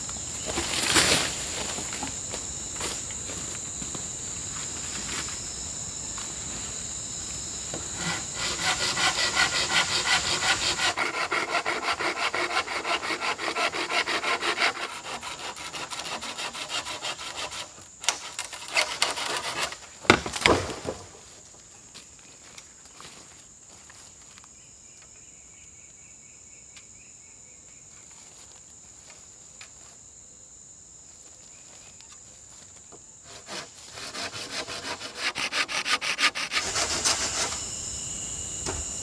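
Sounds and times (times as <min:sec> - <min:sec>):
high insect whine: 0:00.0 - 0:39.0
hand saw cutting bamboo: 0:07.9 - 0:19.8, 0:33.2 - 0:37.6
bamboo cracking and knocking: 0:20.0 - 0:21.2.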